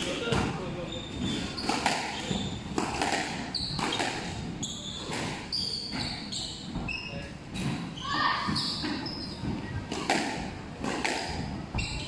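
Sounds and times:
sneakers squeaking on court floor: 0:00.2 - 0:09.8, 0:11.7 - 0:12.0
squash ball hits: 0:01.2 - 0:06.0, 0:07.5 - 0:11.8.

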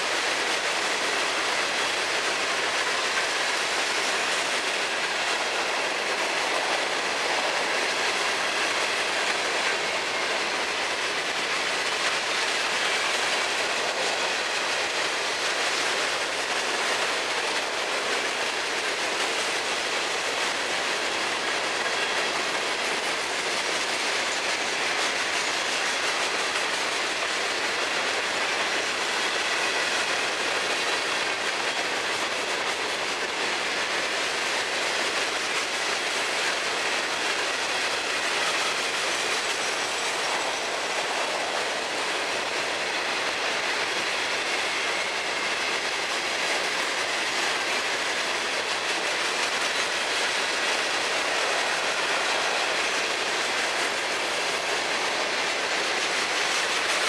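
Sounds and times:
freight train wheels on rails: 0:00.0 - 0:57.0.

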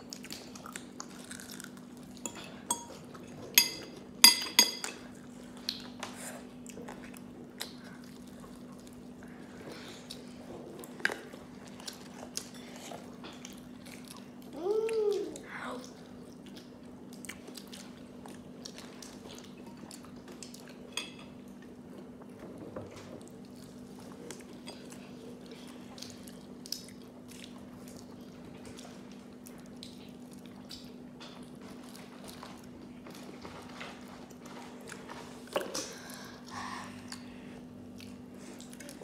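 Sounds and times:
person chewing crunchy food: 0:00.0 - 0:04.2
steady low hum: 0:23.2 - 0:39.0.

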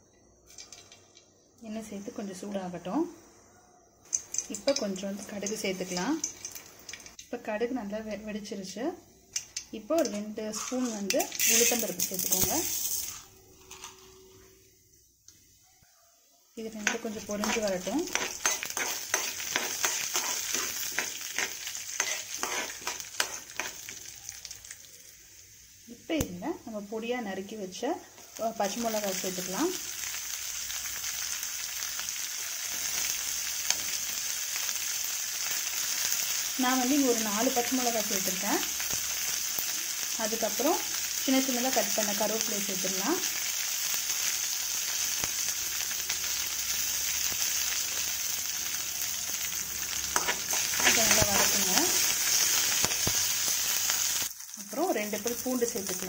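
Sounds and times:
seeds sizzling in hot oil: 0:00.0 - 0:56.0
steel spoon scraping pan: 0:10.5 - 0:11.8, 0:16.8 - 0:23.9, 0:50.1 - 0:53.0.

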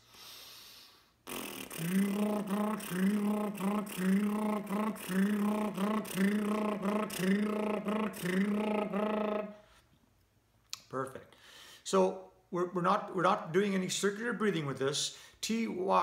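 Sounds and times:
buzzing lips drone: 0:01.2 - 0:09.6.

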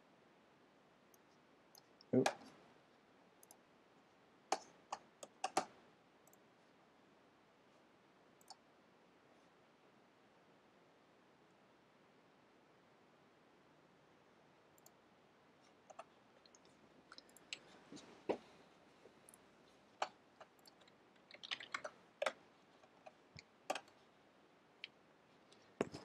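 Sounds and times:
computer mouse and key clicks: 0:03.4 - 0:03.6, 0:04.5 - 0:06.4, 0:08.4 - 0:08.6, 0:15.9 - 0:18.1, 0:20.0 - 0:24.0.

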